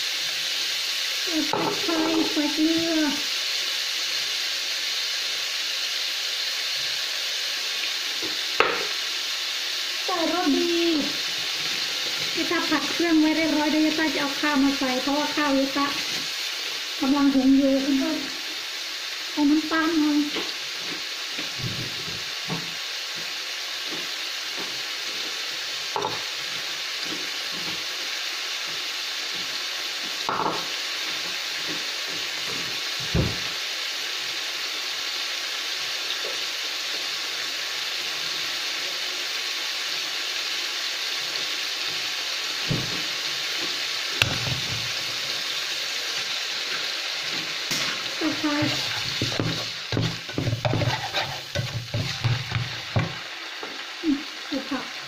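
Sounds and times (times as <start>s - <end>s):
meat sizzling in hot oil: 0.0s - 55.0s
plastic spatula scraping a pan: 48.6s - 52.7s.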